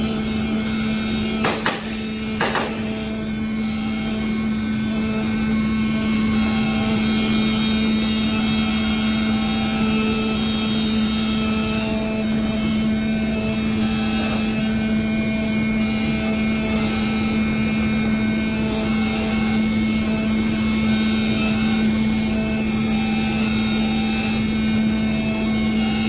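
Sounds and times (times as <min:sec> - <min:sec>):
knife cutter humming: 0:00.0 - 0:26.0.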